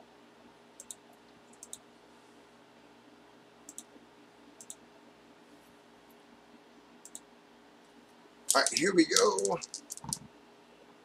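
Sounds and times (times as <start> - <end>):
computer mouse clicking: 0.8 - 1.8, 3.7 - 3.9, 4.6 - 4.8, 7.0 - 7.2, 8.5 - 10.2.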